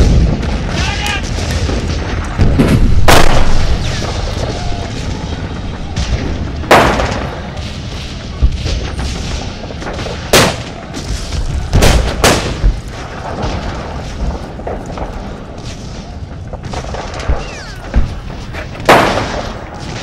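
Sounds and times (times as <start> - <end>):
low rumble: 0.0 - 20.0
rifle shots: 1.2 - 4.4, 6.0 - 7.7, 8.5 - 13.8, 16.6 - 20.0.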